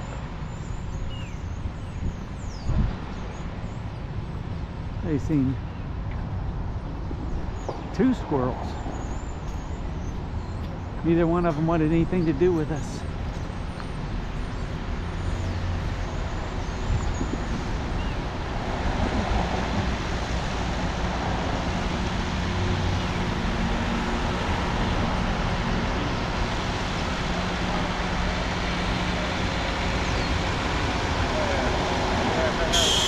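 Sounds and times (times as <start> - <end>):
road traffic noise: 0.0 - 33.0
diesel truck engine humming: 17.8 - 33.0.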